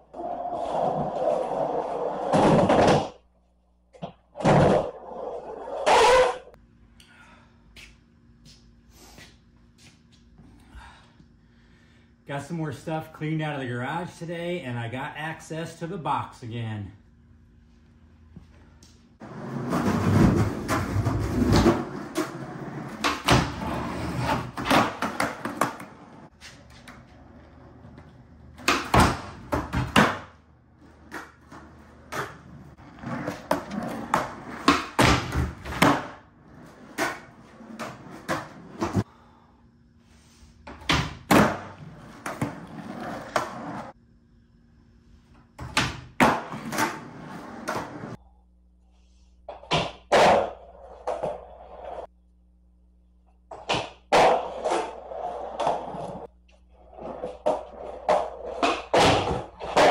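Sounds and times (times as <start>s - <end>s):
skateboard wheels rolling on concrete: 0.0s - 3.2s, 3.9s - 6.6s, 19.1s - 39.1s, 40.6s - 44.0s, 45.4s - 48.2s, 49.5s - 52.1s, 53.5s - 59.9s.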